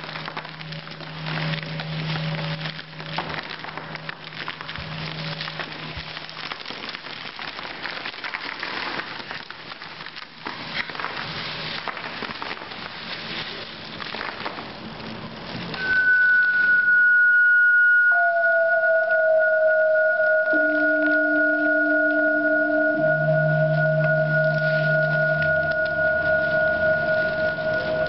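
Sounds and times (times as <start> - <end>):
lower steady tones: 0.0 - 6.6, 15.7 - 28.0
ice and water clattering on floor: 0.0 - 16.8
high pure tone: 15.8 - 28.0.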